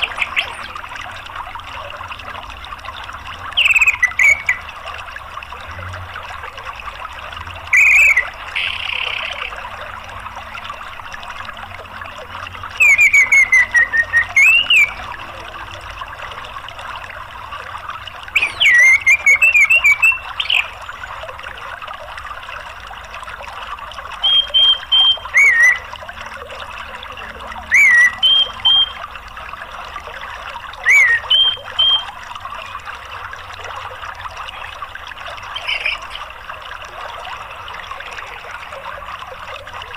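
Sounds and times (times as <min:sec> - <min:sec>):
rushing stream: 0:00.0 - 0:39.9
thrush singing chirped notes: 0:12.6 - 0:15.2, 0:18.3 - 0:21.1, 0:24.2 - 0:26.1, 0:27.2 - 0:29.2, 0:30.8 - 0:32.1.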